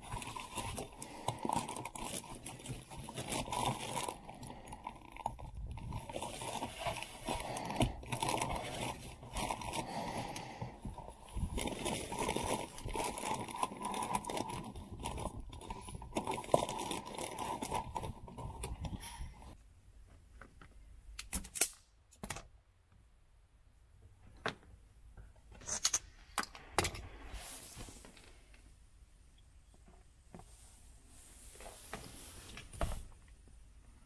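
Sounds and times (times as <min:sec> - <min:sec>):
foil insulation crinkling: 0:00.0 - 0:19.6.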